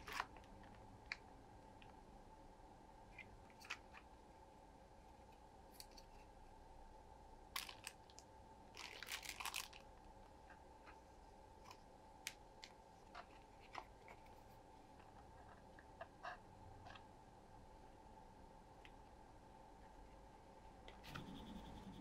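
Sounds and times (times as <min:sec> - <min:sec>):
plastic bag crinkling: 0:07.6 - 0:09.9.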